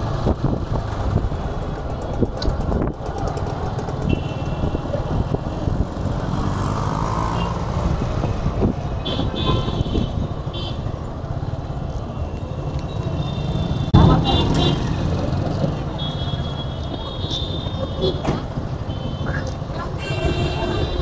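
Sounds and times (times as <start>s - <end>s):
motorcycle engine and wind rumble: 0.0s - 21.0s
vehicle horns tooting: 4.0s - 4.9s, 9.0s - 10.8s, 13.0s - 15.0s, 16.0s - 19.4s, 20.0s - 21.0s.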